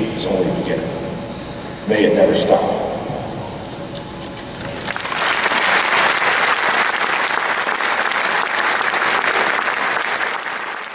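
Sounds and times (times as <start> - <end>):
audience applauding: 4.7 - 10.9.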